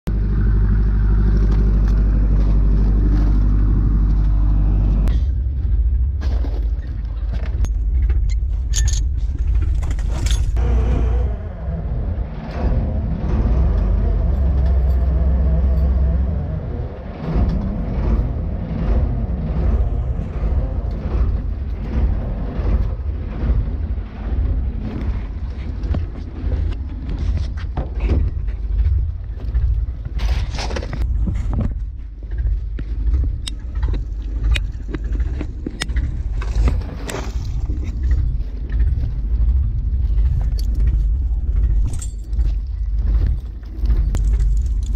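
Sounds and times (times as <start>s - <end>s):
boat engine and winch humming: 0.1s - 44.9s
metallic clanking of chain: 7.7s - 10.6s, 13.9s - 16.4s, 33.4s - 44.9s.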